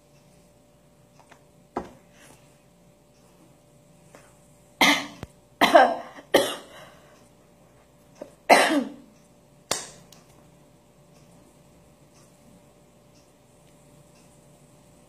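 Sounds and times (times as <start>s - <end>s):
person's cough-like vocal bursts: 4.8s - 6.8s, 8.5s - 9.0s.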